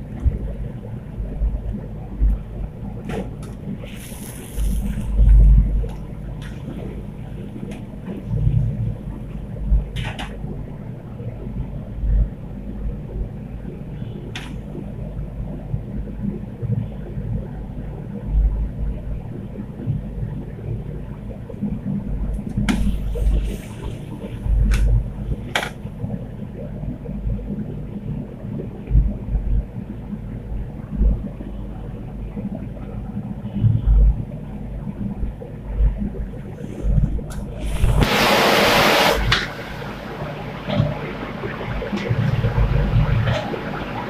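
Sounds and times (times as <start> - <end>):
gas burner rumble: 36.5 - 44.0.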